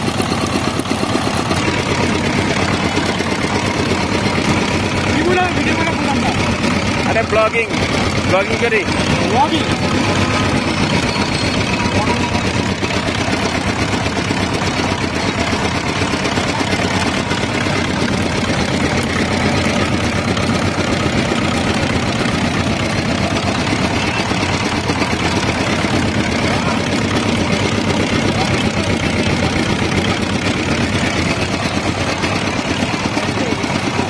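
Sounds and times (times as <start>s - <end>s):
small engine running: 0.0s - 34.0s
sugarcane crusher rollers: 0.0s - 34.0s.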